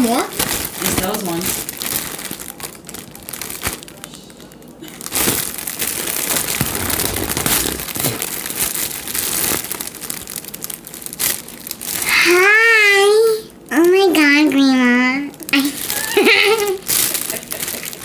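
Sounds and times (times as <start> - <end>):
foil balloon crinkling: 0.0 - 4.1, 5.0 - 12.4, 15.4 - 18.0.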